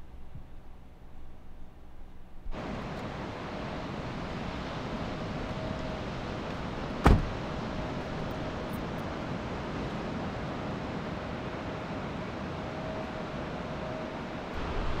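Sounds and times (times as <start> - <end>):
wind and surf: 2.4 - 15.0
pickup door slamming shut: 7.0 - 7.4.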